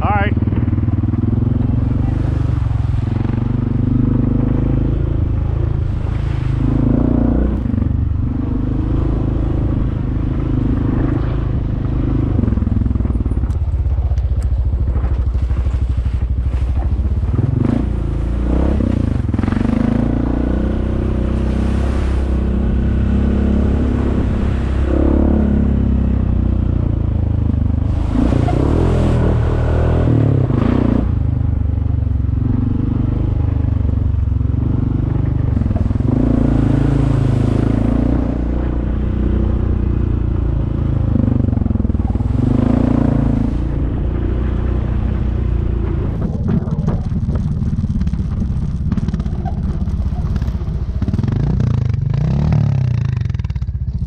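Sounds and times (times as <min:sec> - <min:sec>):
off-road vehicle engine running: 0:00.0 - 0:54.0.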